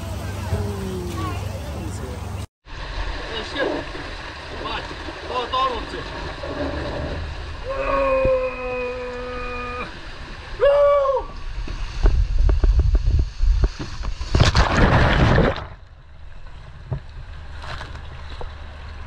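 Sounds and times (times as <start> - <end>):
muffled water sounds: 0.0 - 19.0
person whooping: 7.6 - 10.0, 10.6 - 11.4
loud splash into water: 13.7 - 15.8.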